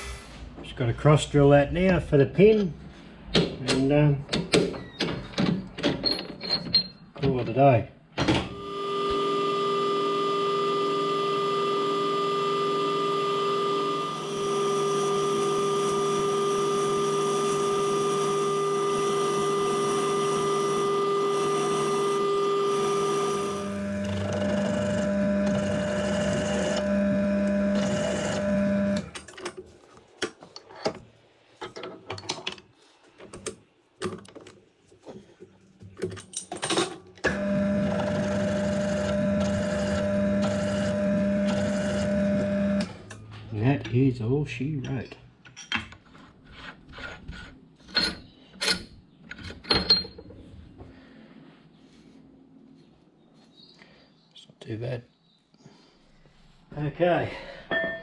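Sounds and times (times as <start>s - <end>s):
milling machine spindle running: 8.5s - 29.2s, 37.3s - 43.0s.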